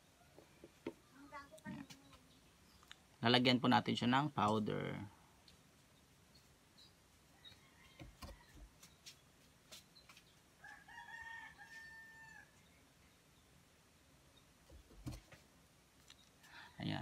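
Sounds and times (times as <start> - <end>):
faint rooster crow: 7.2 - 8.9, 10.6 - 12.8.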